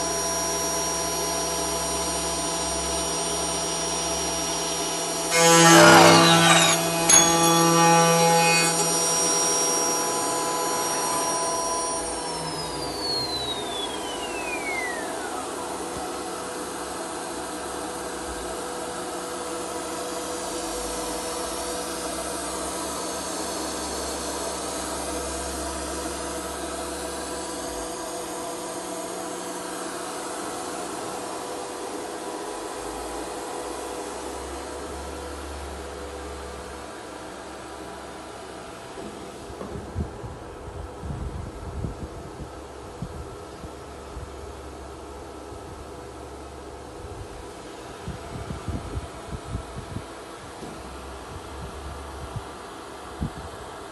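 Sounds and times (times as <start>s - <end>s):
machine spindle whining: 0.0s - 18.2s.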